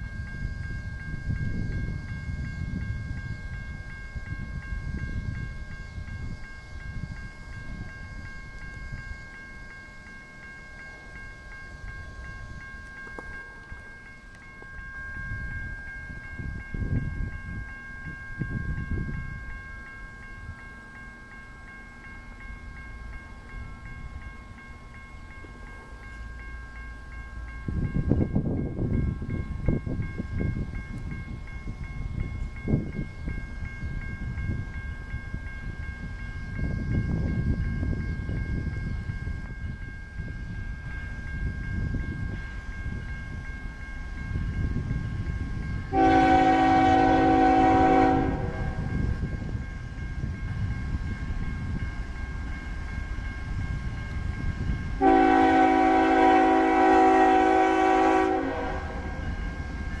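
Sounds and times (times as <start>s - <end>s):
train rumbling: 0.0s - 60.0s
locomotive air horn blasts: 45.9s - 48.9s, 55.0s - 59.2s.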